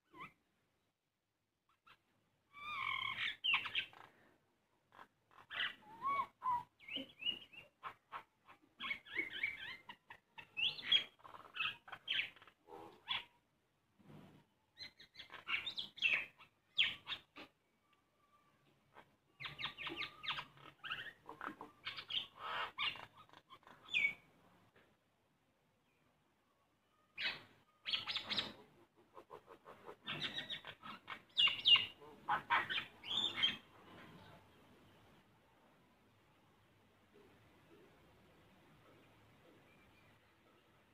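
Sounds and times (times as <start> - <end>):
bird harsh chatters and squawks: 1.8 - 4.2, 4.9 - 13.4, 14.8 - 17.6, 18.9 - 24.3, 27.1 - 33.7
myna bird calling: 18.9 - 24.3, 26.9 - 33.7.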